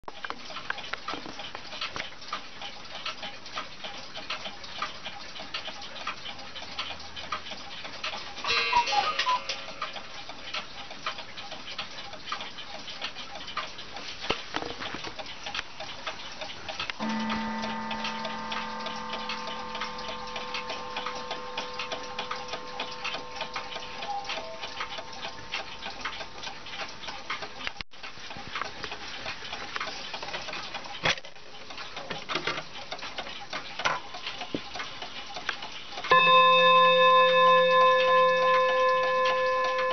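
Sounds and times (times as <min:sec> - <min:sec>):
mantel clock ticking: 0:00.1 - 0:39.9
clock strike ringing: 0:17.0 - 0:26.5, 0:36.1 - 0:39.9.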